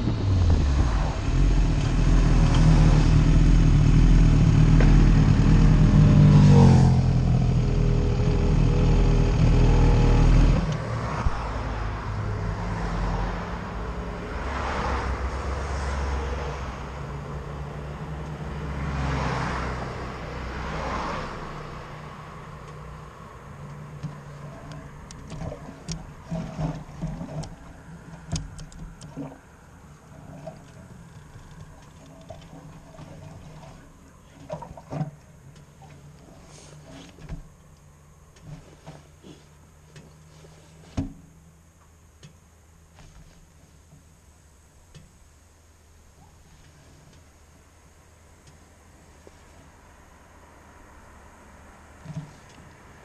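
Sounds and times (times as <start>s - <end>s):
motorcycle engine running: 0.0s - 10.8s
cars passing with whoosh: 0.0s - 41.8s, 48.0s - 53.0s.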